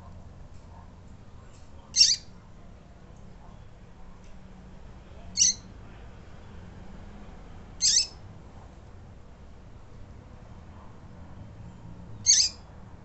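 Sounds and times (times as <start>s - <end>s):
bird high peeps: 2.0s - 2.3s, 5.4s - 5.7s, 7.8s - 8.2s, 12.2s - 12.6s.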